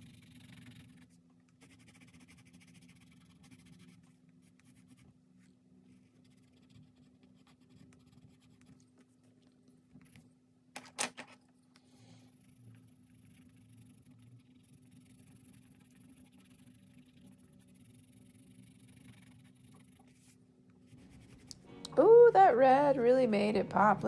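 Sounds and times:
pencil scratching on paper: 0.0s - 5.2s, 5.9s - 9.0s, 12.3s - 21.6s.

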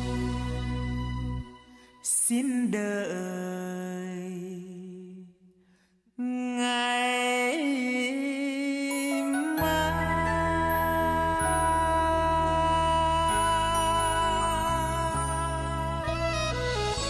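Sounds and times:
background music with held notes: 0.0s - 2.4s, 8.9s - 17.0s.

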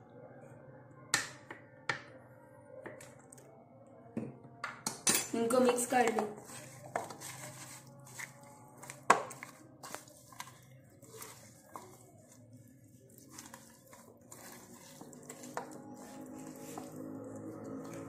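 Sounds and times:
wet squelching of hands mixing: 5.5s - 18.0s.

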